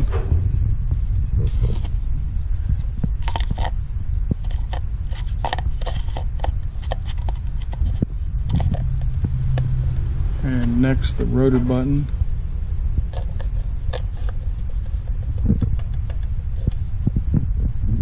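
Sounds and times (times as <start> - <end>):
steady low rumble: 0.0 - 18.0
plastic cover clicking and scraping: 3.2 - 3.8, 4.4 - 9.7, 13.1 - 16.8.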